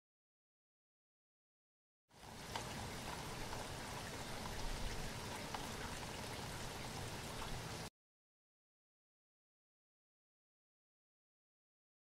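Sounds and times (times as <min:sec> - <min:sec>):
wind noise on microphone: 0:02.3 - 0:07.8.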